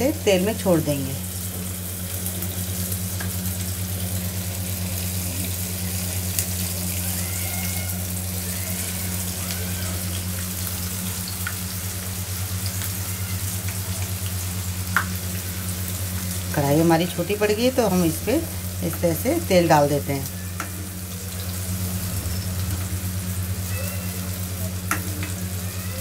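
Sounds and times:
food sizzling in hot oil: 0.0s - 26.0s
low hum: 8.0s - 25.7s.

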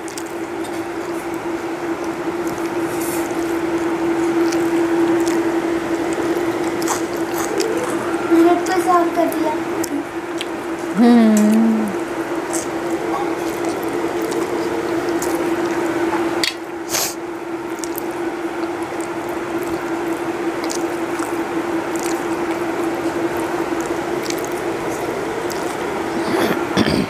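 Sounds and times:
chewing: 0.0s - 11.5s, 12.2s - 26.8s
steady hum: 0.0s - 27.0s
fingers mixing food on steel plate: 12.3s - 16.5s, 17.7s - 26.0s.

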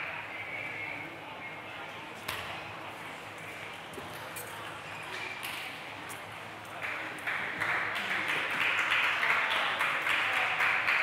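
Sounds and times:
spectators applauding: 6.8s - 11.0s.

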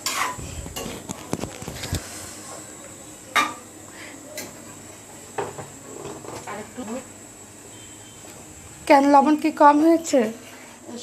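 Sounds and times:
metal spatula scraping a pot: 0.0s - 0.4s.

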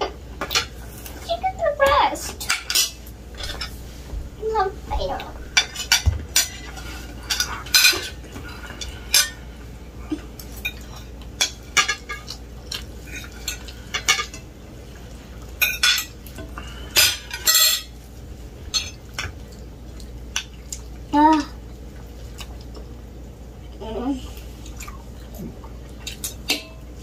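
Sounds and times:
cutlery clinking on plates: 2.4s - 3.8s, 5.6s - 9.4s, 10.6s - 12.4s, 13.1s - 14.4s, 15.6s - 18.0s, 26.0s - 26.8s.

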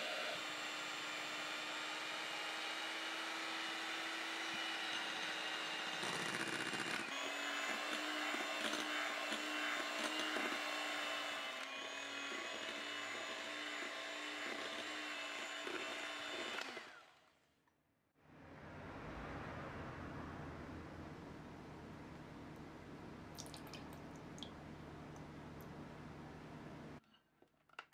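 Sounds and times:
electric hand mixer running: 0.0s - 17.2s.

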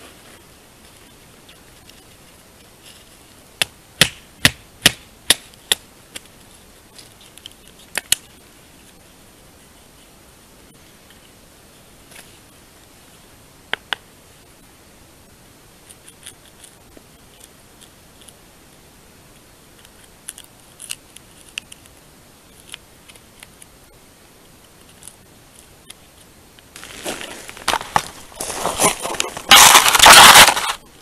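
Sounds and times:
knife whittling wood: 26.9s - 30.8s.

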